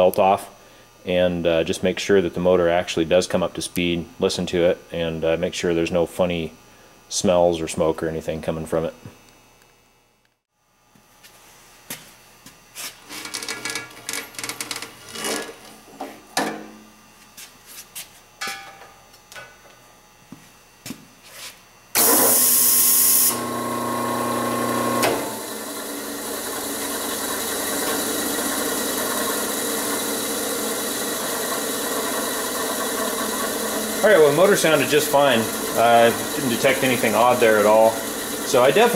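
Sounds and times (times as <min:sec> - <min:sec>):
electric motor running: 0:22.0 - 0:38.9.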